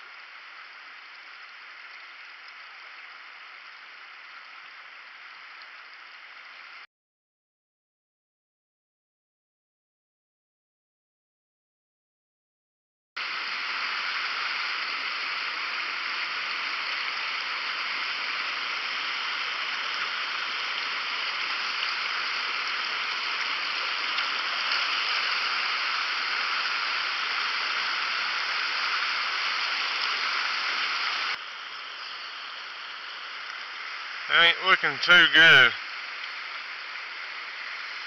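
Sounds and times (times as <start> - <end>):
creek water rushing over rocks: 13.2 - 38.0.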